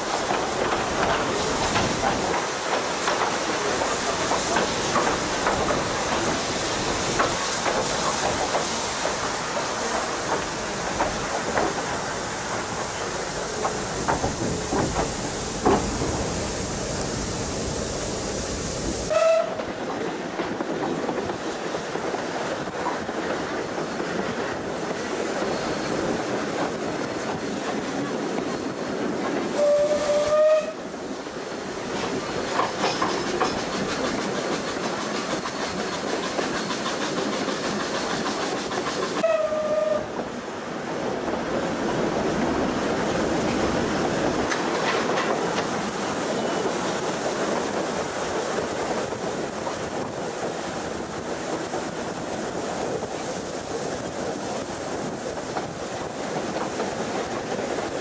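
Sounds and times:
train rolling clatter on rails: 0.0 - 58.0
steam whistle blasts: 19.1 - 19.7, 29.6 - 30.9, 39.2 - 40.1.

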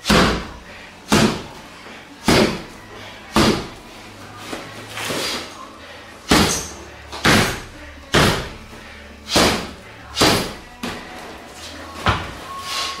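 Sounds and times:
punches thudding on a pad: 0.0 - 1.6, 2.2 - 2.7, 3.3 - 3.8, 6.3 - 8.6, 9.3 - 11.0.

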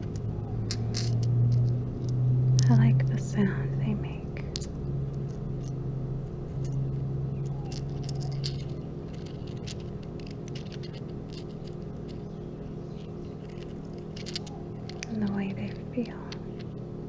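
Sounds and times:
crystal pieces clinking: 7.6 - 12.2.

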